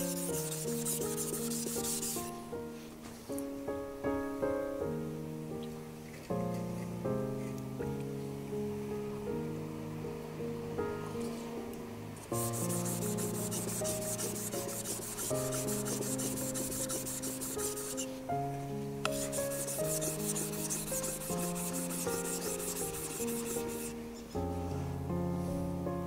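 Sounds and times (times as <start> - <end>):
knife scraping on whetstone: 0.0 - 2.3, 12.4 - 18.2, 19.1 - 24.0
quiet background music: 0.0 - 26.0.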